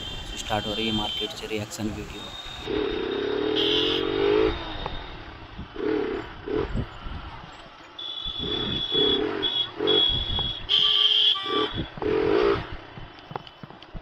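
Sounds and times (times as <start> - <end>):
vehicle horns honking: 0.0 - 5.2, 8.0 - 12.7
traffic noise: 0.0 - 14.0
motorcycle engine: 2.2 - 13.4.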